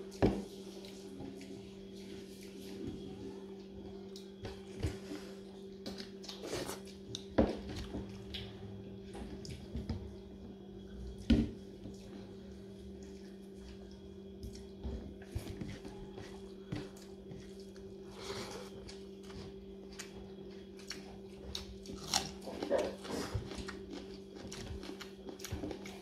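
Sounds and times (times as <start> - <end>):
low steady hum: 0.0 - 26.0.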